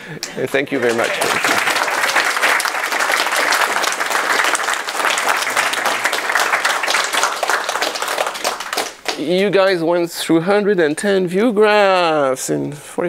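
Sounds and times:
audience applauding: 0:00.6 - 0:09.4.

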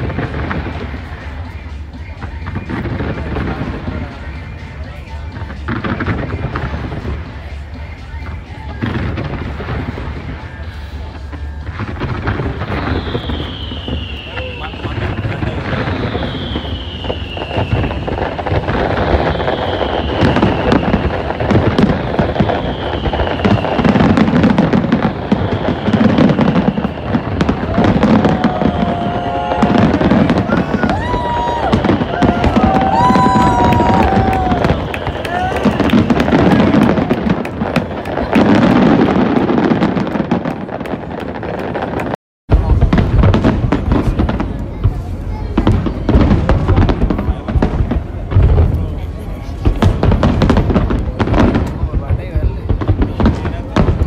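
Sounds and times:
fireworks crackling pops: 0:00.0 - 0:54.0
high whistle falling in pitch: 0:12.7 - 0:18.2, 0:19.1 - 0:21.4, 0:22.1 - 0:24.6, 0:25.3 - 0:37.1.

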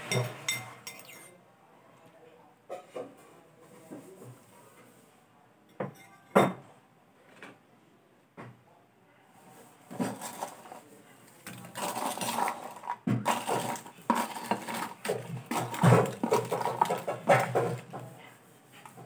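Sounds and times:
crackers clattering onto a plate: 0:09.9 - 0:10.8, 0:11.4 - 0:18.0.

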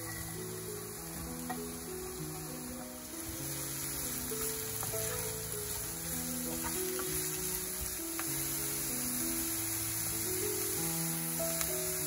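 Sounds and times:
onions sizzling in a frying pan: 0:00.0 - 0:12.0
soft background music: 0:00.0 - 0:12.0
wooden spatula scraping: 0:03.3 - 0:07.9.

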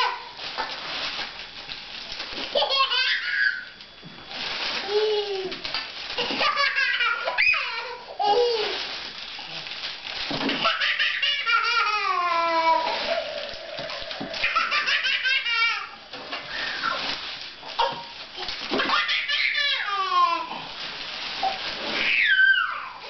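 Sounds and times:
toddler laughing and squealing: 0:02.6 - 0:03.7, 0:06.2 - 0:08.8, 0:10.6 - 0:13.1, 0:14.4 - 0:16.0, 0:18.8 - 0:20.6.

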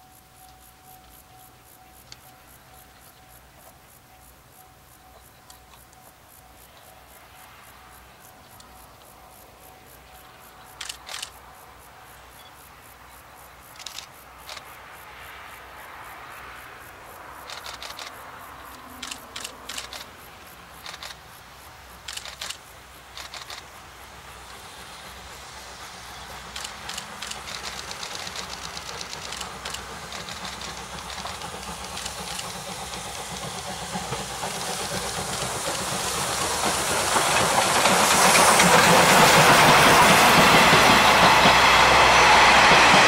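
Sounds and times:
steam hiss: 0:00.0 - 0:43.0
steam locomotive exhaust chuffs: 0:16.8 - 0:43.0.

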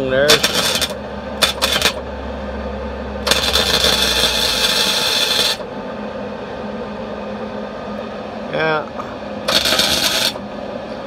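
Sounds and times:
welder arc crackling: 0:00.0 - 0:02.1, 0:03.2 - 0:05.7, 0:09.4 - 0:10.4.

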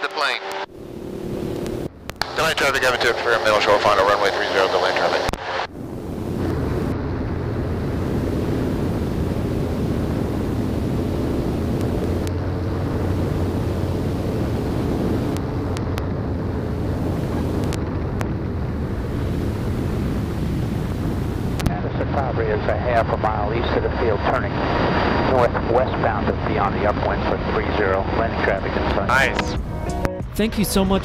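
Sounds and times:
wind buffeting microphone: 0:05.7 - 0:21.8.

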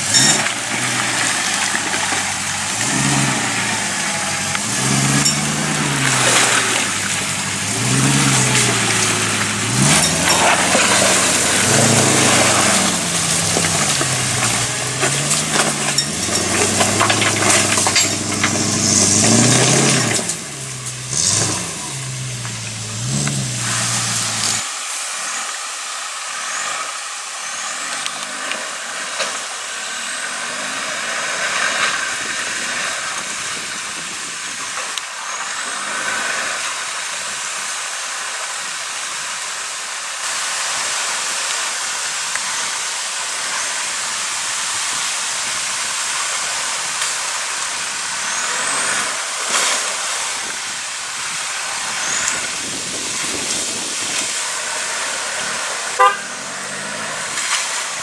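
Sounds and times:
water splashing around vehicle: 0:00.0 - 0:58.0.

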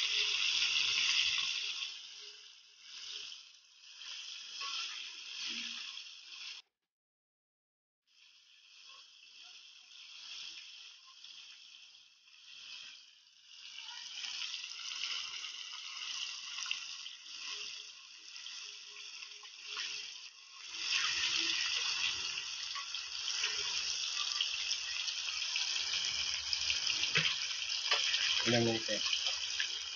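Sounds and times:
fish deep-frying in oil: 0:00.0 - 0:06.6, 0:08.1 - 0:29.9.

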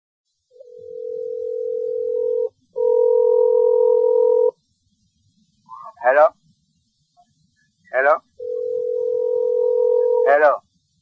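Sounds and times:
long electronic beeps: 0:08.4 - 0:10.5.

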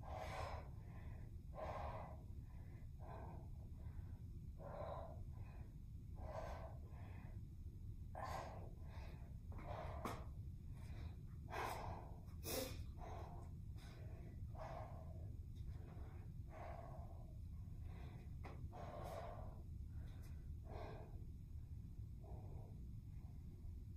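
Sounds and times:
woman breathing hard: 0:00.0 - 0:23.6
low hum: 0:00.0 - 0:23.9.

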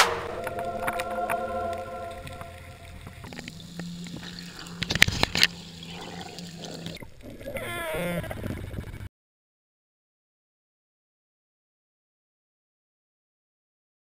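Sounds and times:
short wavering pitched sound: 0:00.0 - 0:03.3
underwater hum and water noise: 0:00.0 - 0:09.1.

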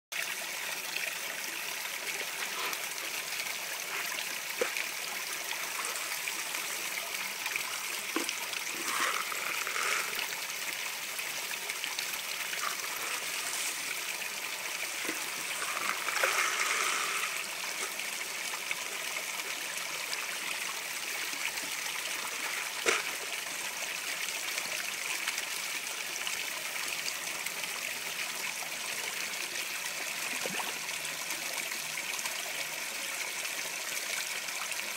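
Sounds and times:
water trickling: 0:00.2 - 0:24.3.

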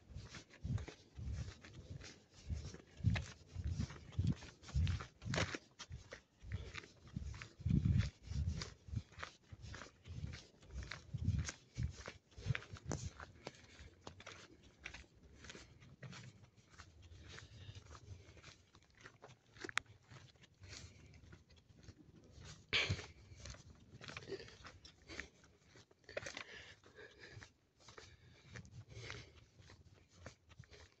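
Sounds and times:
footsteps crunching on dirt path: 0:00.0 - 0:31.0.

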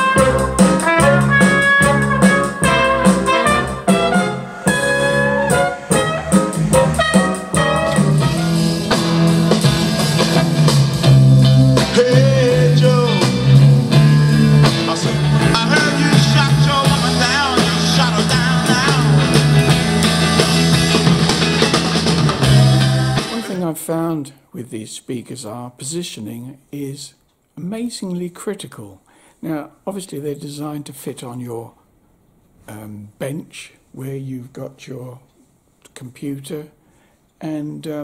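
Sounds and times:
wavering held notes: 0:00.0 - 0:09.6
bass line: 0:00.0 - 0:23.6
guitar: 0:00.0 - 0:23.8.

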